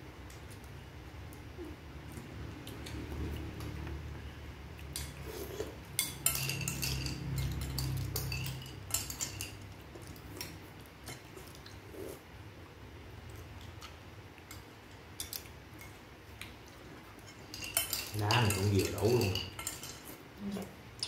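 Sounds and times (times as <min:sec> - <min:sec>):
low steady hum: 0:00.0 - 0:21.0
spoons clinking against bowls: 0:04.9 - 0:11.3, 0:17.2 - 0:20.2.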